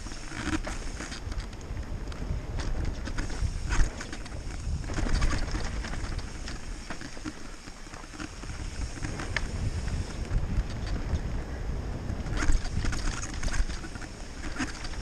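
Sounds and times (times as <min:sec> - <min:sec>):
wind on microphone: 0:00.0 - 0:07.5, 0:08.2 - 0:15.0
bike clicks and rattles: 0:00.0 - 0:15.0
bike tyres rumbling on dirt: 0:00.0 - 0:15.0.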